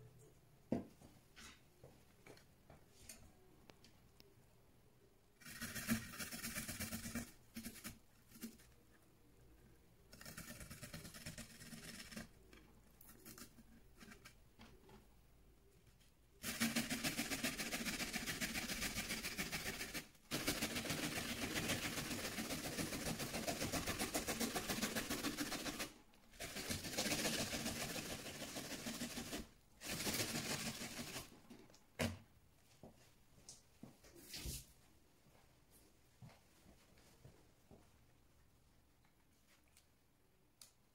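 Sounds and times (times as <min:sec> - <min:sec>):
food grated on metal grater: 0:16.4 - 0:31.2.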